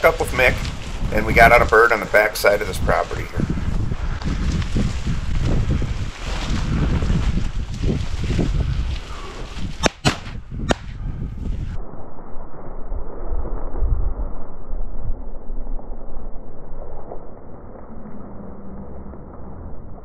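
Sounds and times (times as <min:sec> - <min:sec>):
shotgun blasts: 0:09.8 - 0:11.0.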